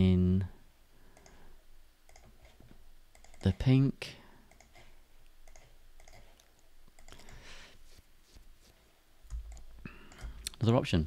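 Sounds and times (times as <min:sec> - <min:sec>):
computer mouse clicks: 0:01.1 - 0:01.4, 0:02.1 - 0:03.6, 0:04.4 - 0:07.4, 0:09.3 - 0:10.6.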